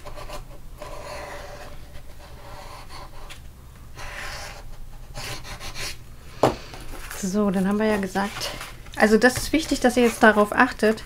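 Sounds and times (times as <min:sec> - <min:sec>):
bone folder scraping paper: 0:09.6 - 0:10.4.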